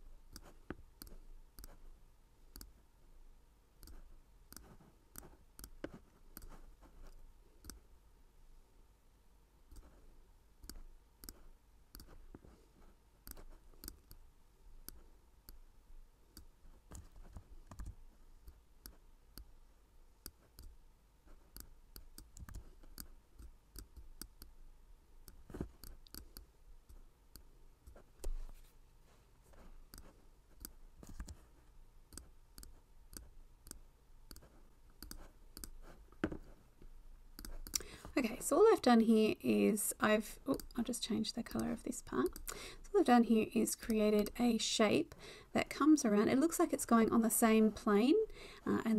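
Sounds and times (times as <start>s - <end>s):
computer mouse clicking: 0.3s - 1.8s, 2.5s - 2.8s, 3.8s - 7.8s, 9.7s - 10.0s, 10.6s - 12.2s, 13.2s - 14.2s, 16.3s - 19.5s, 20.2s - 20.8s, 21.5s - 24.6s, 25.2s - 28.4s, 29.9s - 31.4s, 32.1s - 35.9s, 37.4s - 37.9s, 40.5s - 40.8s, 41.5s - 42.6s.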